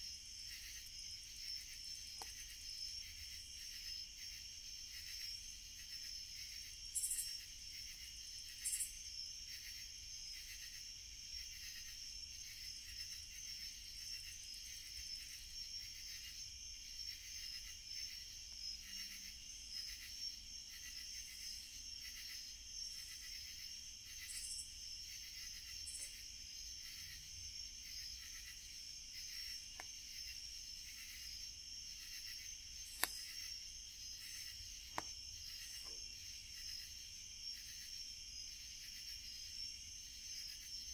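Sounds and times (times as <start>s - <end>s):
night insects chorus: 0.0s - 40.9s
campfire crackling and popping: 32.8s - 33.4s.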